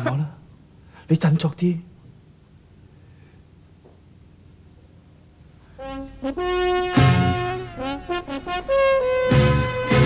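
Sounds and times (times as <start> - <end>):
faint background hiss: 0.0 - 10.0
brass chord: 5.7 - 10.0.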